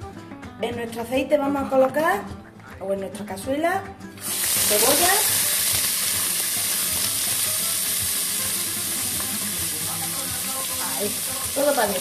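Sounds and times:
onion sizzling in oil: 0:04.2 - 0:12.0.

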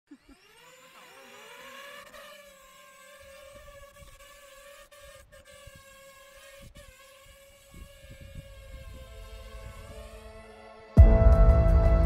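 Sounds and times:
drone propellers whining: 0:00.1 - 0:12.0
wind noise on microphone: 0:07.6 - 0:12.0.

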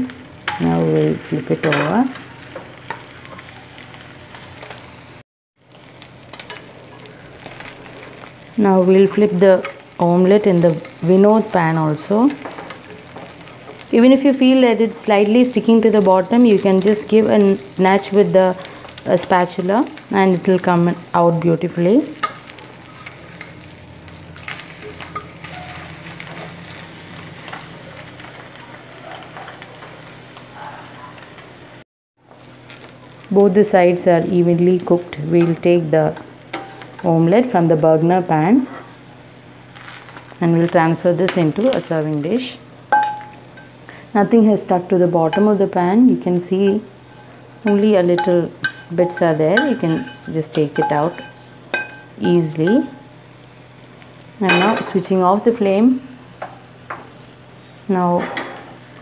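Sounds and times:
omelette sizzling in a pan: 0:00.0 - 0:59.0
wooden spatula scraping pan: 0:48.2 - 0:52.0.

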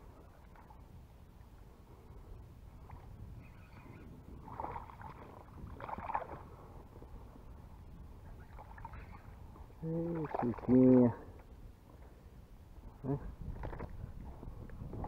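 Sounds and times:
low rumble of wind and water: 0:00.0 - 0:15.0
fish splashing in water: 0:04.4 - 0:06.5, 0:10.0 - 0:10.8.

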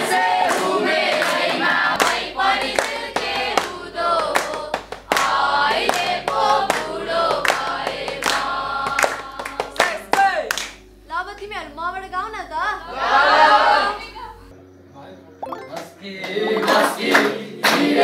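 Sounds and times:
children clapping in rhythm: 0:00.0 - 0:10.8, 0:16.3 - 0:18.0.

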